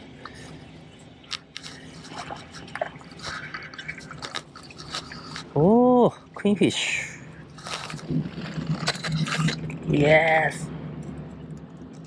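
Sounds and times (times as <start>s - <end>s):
small water splashes: 2.0s - 5.5s
water dripping: 2.1s - 5.1s.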